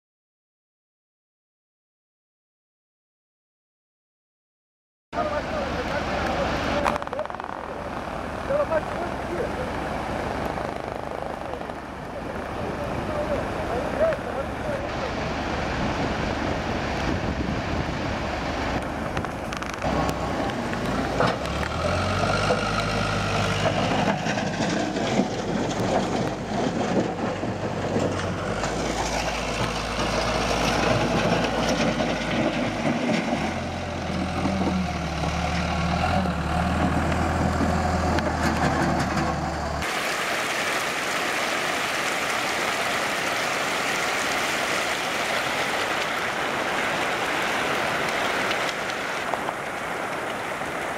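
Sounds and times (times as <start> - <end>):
waterfall rushing: 5.2 - 23.7, 39.8 - 50.9
diesel engine running: 17.8 - 39.8.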